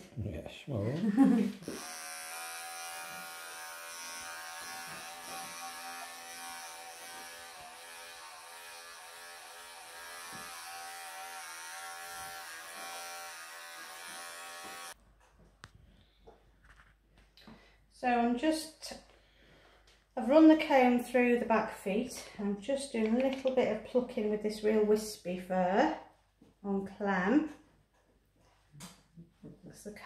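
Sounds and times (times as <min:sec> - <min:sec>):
electric clippers buzzing: 0:01.4 - 0:15.0.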